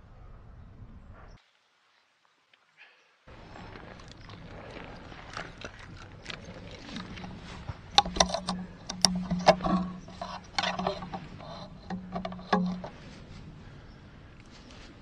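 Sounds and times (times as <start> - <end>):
bow and arrow clicks and knocks: 5.4 - 13.4.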